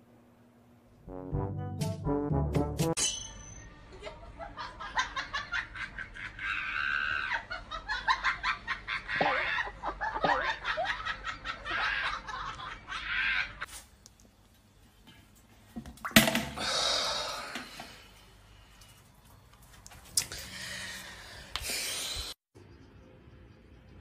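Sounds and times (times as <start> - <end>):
laughter with high squeals: 3.6 - 13.7.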